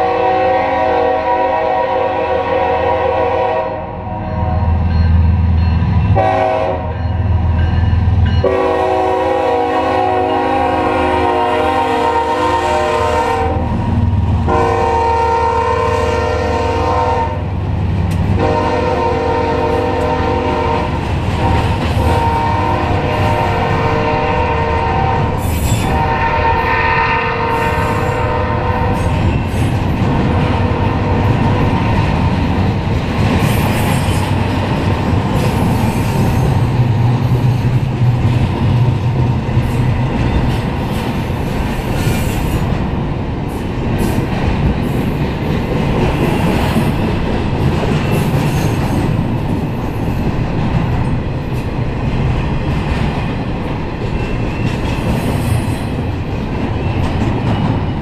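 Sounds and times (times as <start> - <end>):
freight train rumble: 0.0 - 58.0
wheels clattering on rails: 43.7 - 58.0.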